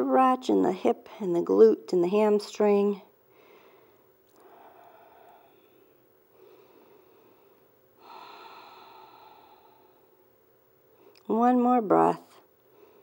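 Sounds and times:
woman breathing deeply: 3.3s - 10.3s, 12.7s - 13.0s.

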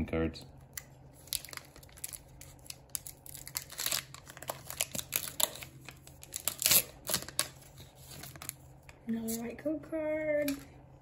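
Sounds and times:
foil wrapper crinkling and tearing: 0.8s - 8.6s.

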